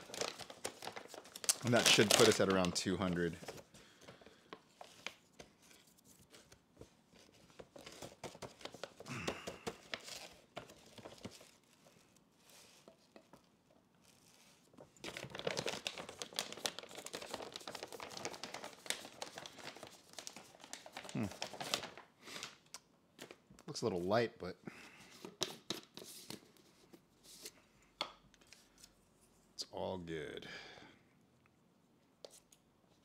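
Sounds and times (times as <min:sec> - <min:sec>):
packaging tearing: 0:00.0 - 0:04.0, 0:15.0 - 0:22.6
packaging crinkling and rustling: 0:00.0 - 0:23.4.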